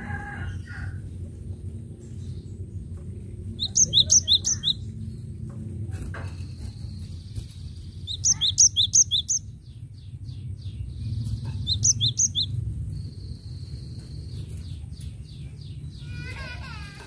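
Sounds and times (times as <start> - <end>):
bird sharp high chirps: 3.6 - 4.9, 6.8 - 9.6, 11.1 - 12.6.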